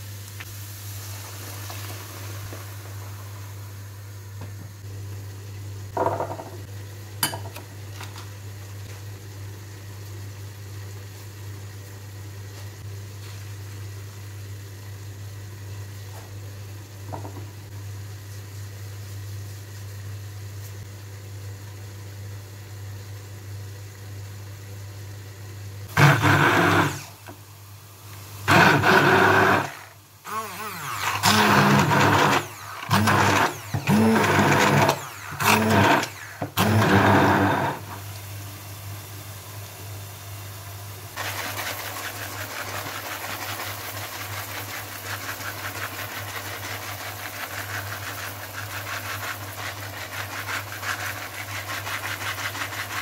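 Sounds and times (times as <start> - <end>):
immersion blender running: 25.9 - 27.4, 28.4 - 38.0.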